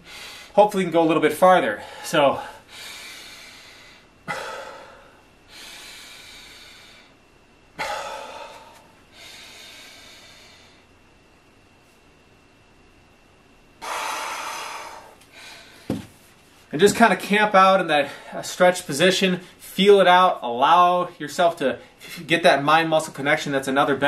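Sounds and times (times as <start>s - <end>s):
man breathing deeply: 0.0s - 0.6s, 1.7s - 10.9s, 13.8s - 16.0s.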